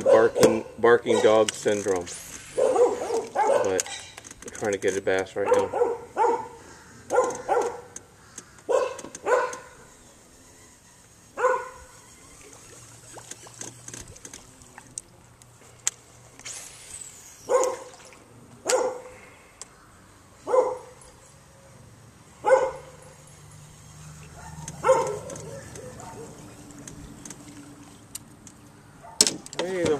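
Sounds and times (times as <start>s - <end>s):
dog barking: 0.0s - 0.7s, 2.6s - 3.8s, 5.4s - 7.9s, 8.7s - 9.7s, 11.4s - 11.8s, 17.5s - 17.8s, 18.7s - 19.1s, 20.4s - 21.0s, 22.4s - 22.9s, 24.4s - 26.4s, 29.0s - 29.2s.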